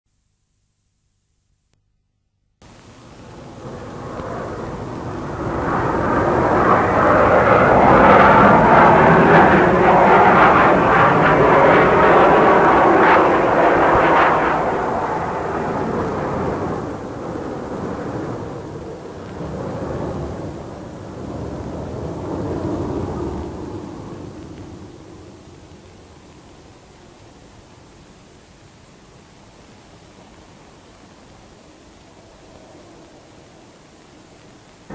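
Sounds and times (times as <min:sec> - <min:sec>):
aircraft flying past: 0:02.8 - 0:25.2.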